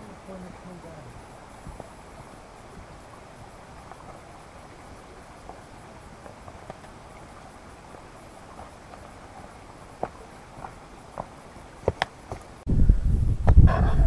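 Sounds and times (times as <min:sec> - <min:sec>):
background hiss: 0:00.0 - 0:14.0
footsteps on rocky trail: 0:01.6 - 0:04.6, 0:05.3 - 0:12.6.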